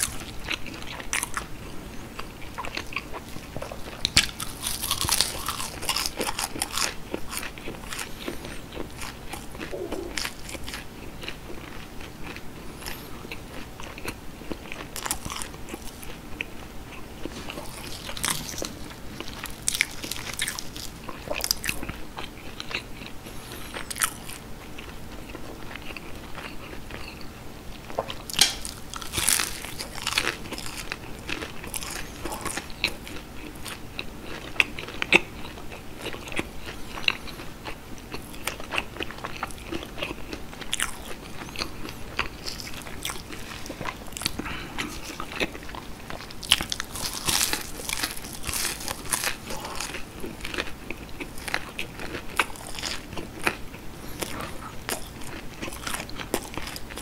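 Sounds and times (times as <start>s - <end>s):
wet chewing: 0.0s - 27.3s, 27.9s - 57.0s
crisp crunching bites: 4.0s - 10.8s, 17.5s - 21.9s, 28.2s - 32.7s, 46.3s - 57.0s.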